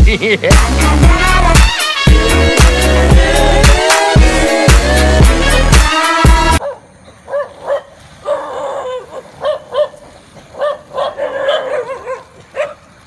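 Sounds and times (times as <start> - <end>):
dogs yipping and barking: 6.6 - 13.0.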